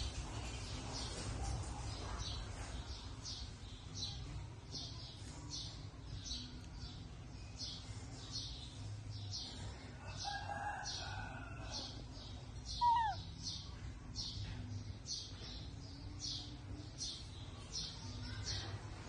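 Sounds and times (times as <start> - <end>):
high-pitched chirping: 12.7 - 13.3.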